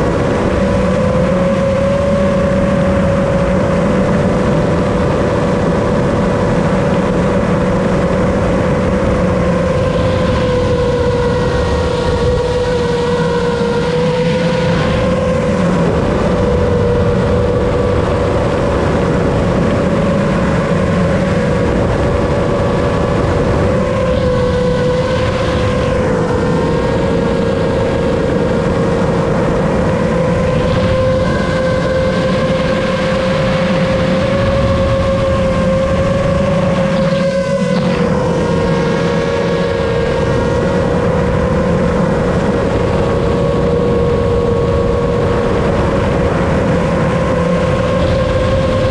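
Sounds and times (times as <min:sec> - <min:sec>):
drone propellers whining: 0:00.0 - 0:48.9.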